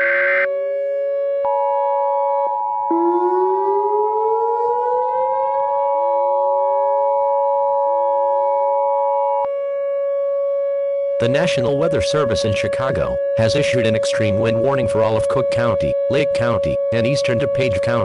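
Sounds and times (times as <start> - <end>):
screeching data burst: 0.0 - 0.5
sirens wailing: 0.0 - 18.0
two-tone alarm signal: 0.0 - 18.0.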